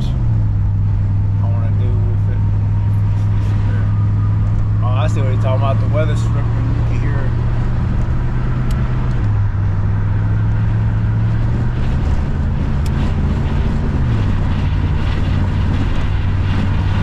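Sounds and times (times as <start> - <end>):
car engine drone: 0.0 - 17.0
road noise: 0.0 - 17.0
wind noise: 2.4 - 17.0.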